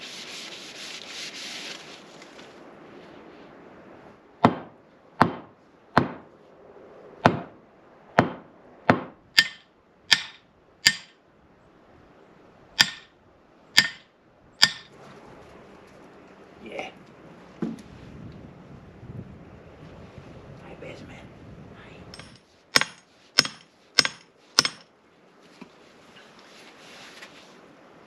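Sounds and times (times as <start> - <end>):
hammer blows: 4.4 - 6.3, 7.2 - 7.6, 8.2 - 11.2, 12.8 - 13.1, 13.8 - 15.0, 22.1 - 24.9.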